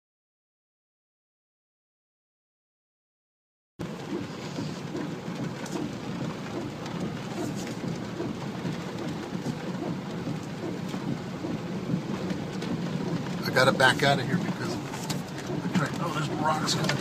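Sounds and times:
floodwater rushing: 3.8 - 17.0.

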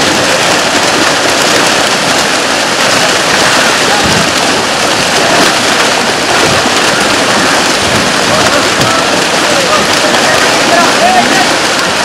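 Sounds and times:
fish splashing in water: 0.0 - 12.0.

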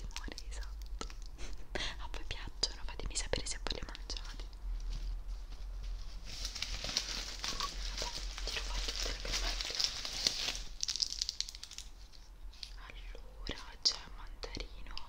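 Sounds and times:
plastic bag crumpling: 5.6 - 12.7.

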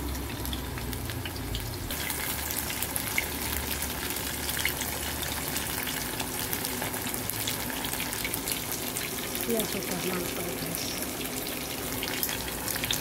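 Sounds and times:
tofu sizzling in hot oil: 0.0 - 13.0.

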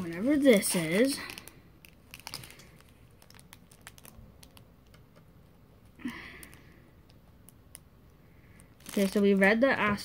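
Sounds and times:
plastic crinkle: 0.0 - 10.0
fingers clicking on plastic packet: 1.1 - 5.4, 6.3 - 9.9.

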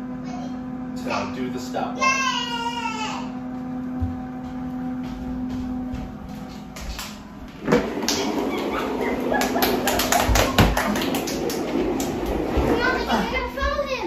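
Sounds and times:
steady low hum: 0.0 - 14.0
footsteps on wood floor: 3.4 - 9.2.

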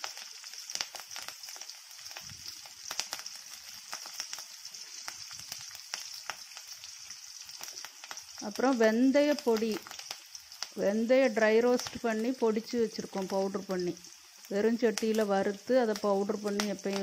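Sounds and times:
food sizzling in hot oil: 0.0 - 17.0
oil popping and crackling: 0.0 - 17.0.

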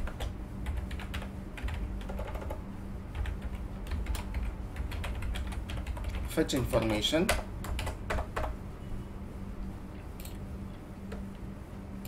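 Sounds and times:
typing on a keyboard: 0.0 - 8.6
low steady hum: 0.0 - 12.0.

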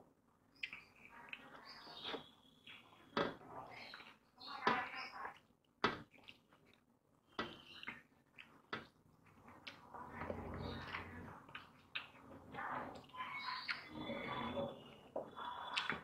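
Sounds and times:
chewing and lip-smacking: 0.5 - 1.7, 5.3 - 7.0, 7.6 - 10.0, 10.9 - 13.9, 15.3 - 16.0.

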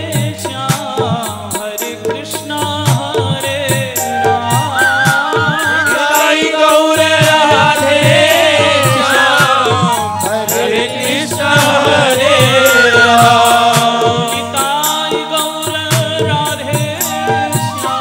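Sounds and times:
jingling percussion: 0.0 - 18.0
hand drum beat: 2.9 - 10.8
wavering melody line: 4.2 - 6.6.

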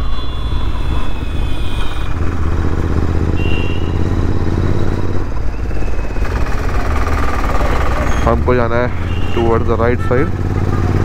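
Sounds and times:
short high beep: 0.0 - 2.2, 3.4 - 4.2
road noise: 0.0 - 11.0
motorcycle engine running: 0.1 - 11.0.

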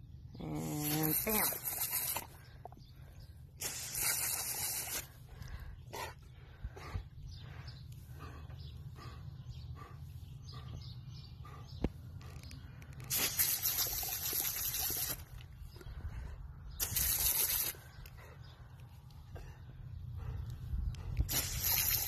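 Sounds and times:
hose spray nozzle hissing: 0.6 - 2.4, 3.6 - 5.2, 13.1 - 15.4, 16.8 - 17.8, 21.3 - 22.0
dog panting: 5.0 - 12.8, 17.5 - 22.0.

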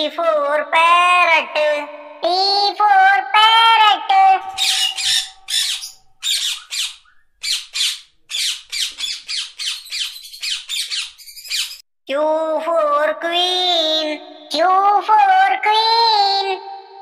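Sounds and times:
parrot squawking: 4.4 - 11.8.

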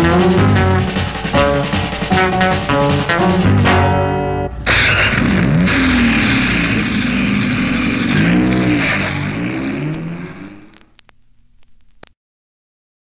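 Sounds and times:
race car engine revving: 4.5 - 10.8
faint clicks: 10.6 - 12.2.

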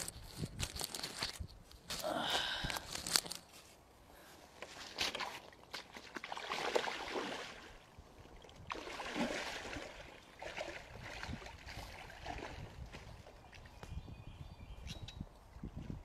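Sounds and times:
water sloshing around wading legs: 4.6 - 13.8.

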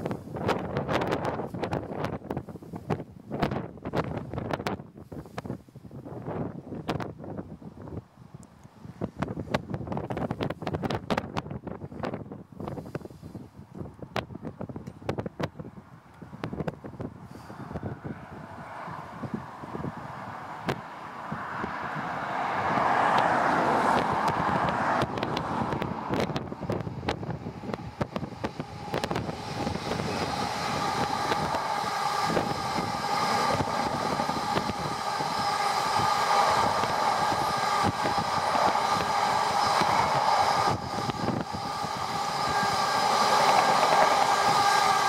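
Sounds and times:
train wheels rushing on rails: 16.4 - 45.0
train wheels whining: 17.3 - 45.0.

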